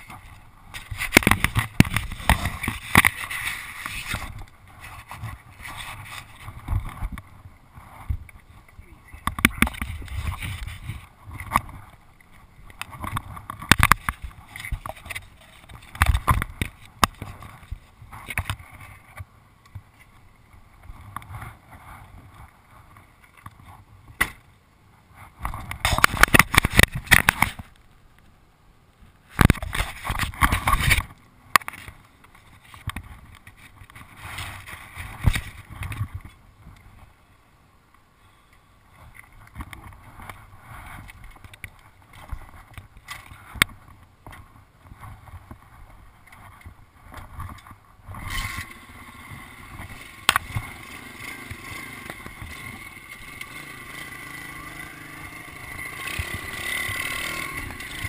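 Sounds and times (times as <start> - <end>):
rustling: 0.0 - 20.3.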